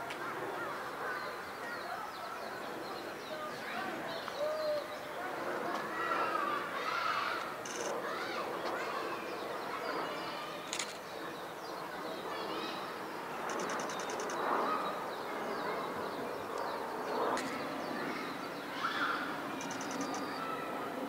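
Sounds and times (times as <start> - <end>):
murmur of visitors chatting: 0.0 - 21.0
birds chirping and calling: 12.7 - 20.6
rapid high-pitched bird trill: 13.4 - 14.9, 19.6 - 20.5.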